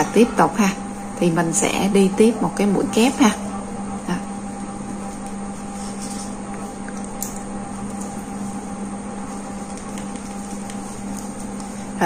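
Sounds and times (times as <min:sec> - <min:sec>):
low room hum: 0:00.0 - 0:12.0.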